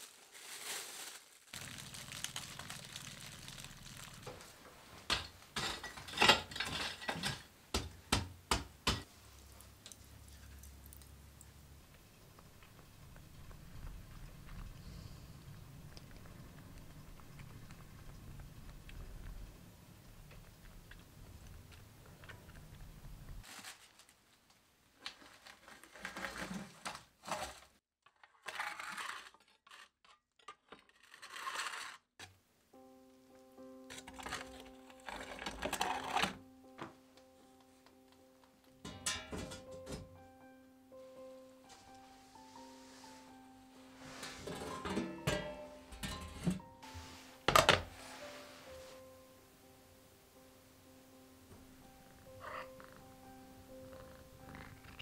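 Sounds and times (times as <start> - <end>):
poker scraping oven floor: 43.9 - 48.8.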